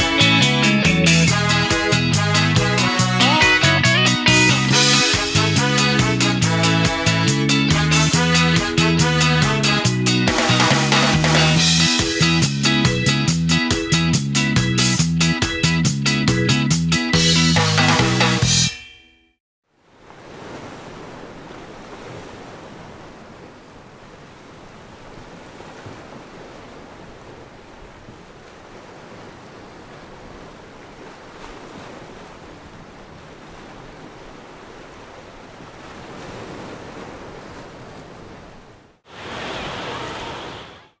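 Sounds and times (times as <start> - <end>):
ocean waves washing: 19.8 - 41.0.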